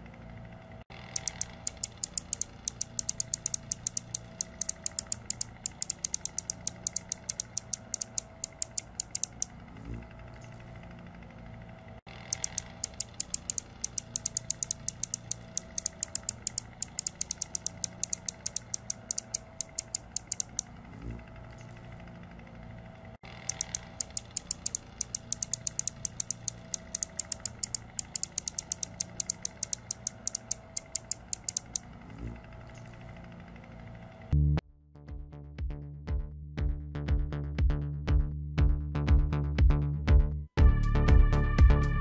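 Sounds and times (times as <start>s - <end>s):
hummingbird singing: 1.0s - 9.5s, 12.2s - 20.6s, 23.3s - 31.8s.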